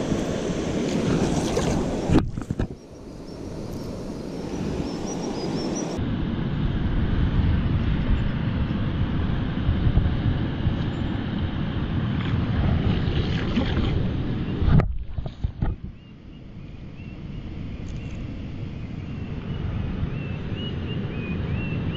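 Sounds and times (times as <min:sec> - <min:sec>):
flowing river water: 0:00.0 - 0:06.0, 0:12.1 - 0:15.9
wind buffeting microphone: 0:00.0 - 0:16.1.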